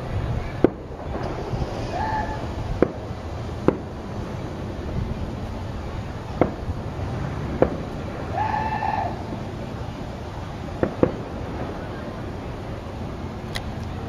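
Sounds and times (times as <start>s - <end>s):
low outdoor background noise: 0.0s - 14.0s
sharp pops: 0.6s - 4.0s, 10.8s - 11.3s.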